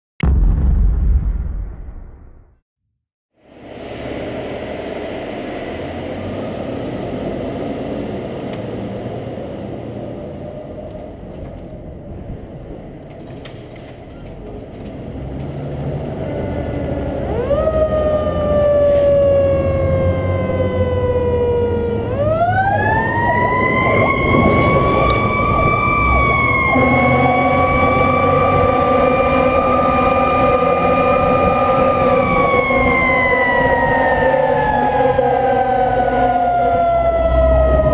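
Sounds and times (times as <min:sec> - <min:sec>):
fire truck diesel engine running: 0:14.2 - 0:37.9
siren wailing: 0:16.2 - 0:37.9
low steady tone: 0:21.2 - 0:37.6.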